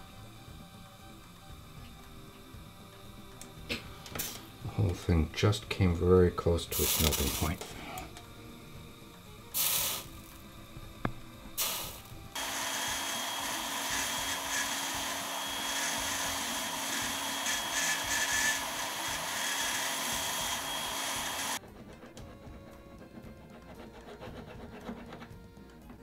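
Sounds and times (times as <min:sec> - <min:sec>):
rotary tool whirring on metal: 0:06.7 - 0:26.0.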